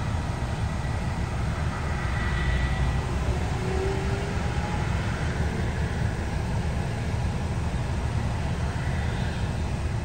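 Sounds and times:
faint high engine whine: 0.0s - 10.0s
jet engines rumbling: 0.0s - 10.0s.

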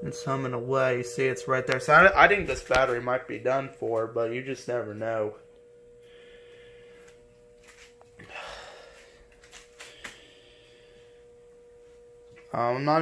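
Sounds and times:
battery charger humming: 0.0s - 13.0s.

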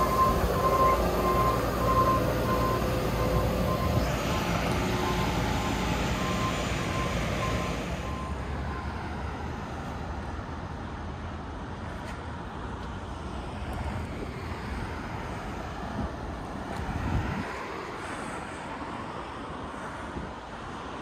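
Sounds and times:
truck engine running: 0.0s - 8.3s
truck warning beeper: 0.0s - 9.0s.

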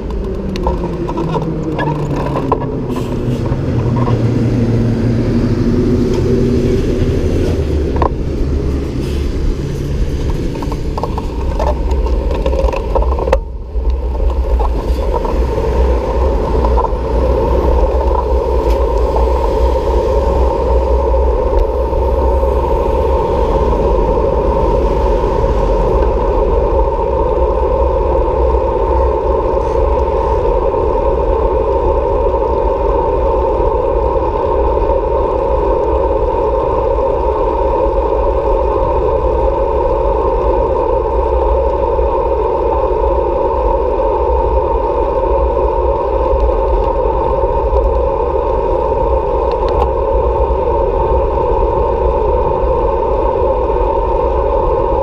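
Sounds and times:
motor vehicles passing: 0.0s - 31.2s
road traffic rumble: 0.0s - 55.0s.

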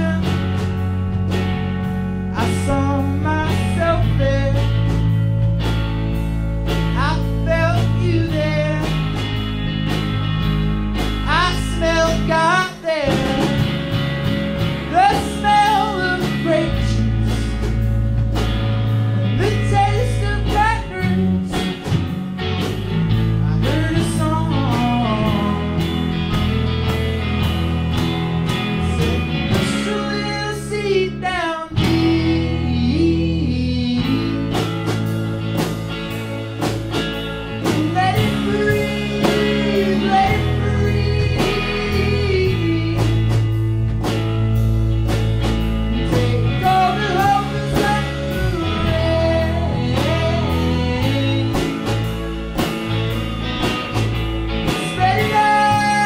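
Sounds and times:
person singing: 0.0s - 0.8s, 2.3s - 5.2s, 6.9s - 9.1s, 11.3s - 14.0s, 14.8s - 17.8s, 19.2s - 22.0s, 23.4s - 26.1s, 28.5s - 35.2s, 37.6s - 43.5s, 45.9s - 52.4s, 54.6s - 56.0s
electric guitars: 0.0s - 56.0s.

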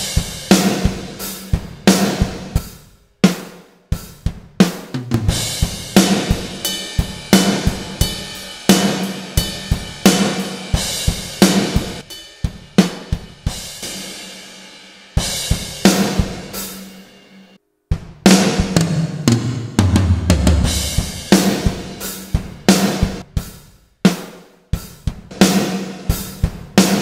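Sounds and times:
rock drum kit groove: 0.0s - 27.0s.

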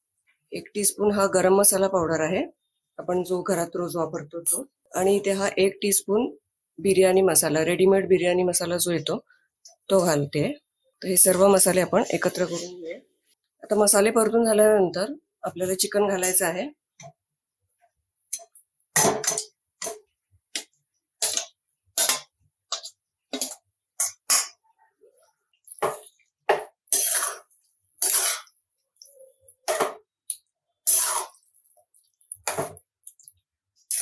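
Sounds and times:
spatula scraping metal pan: 26.9s - 28.5s, 30.8s - 31.4s.

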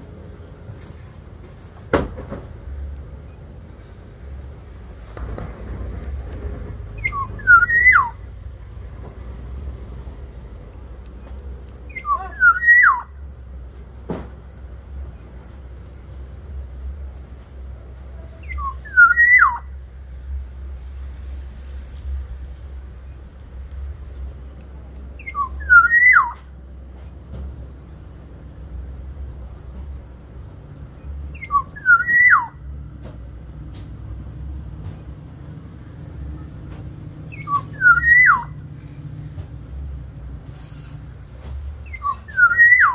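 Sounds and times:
steady low rumble: 2.5s - 7.5s, 8.1s - 12.2s, 19.7s - 25.6s, 26.5s - 31.4s
oriole fluty whistled song: 7.0s - 8.2s, 11.2s - 13.2s, 18.4s - 19.7s, 25.2s - 26.4s, 31.0s - 32.6s, 37.3s - 38.6s, 41.8s - 42.9s.

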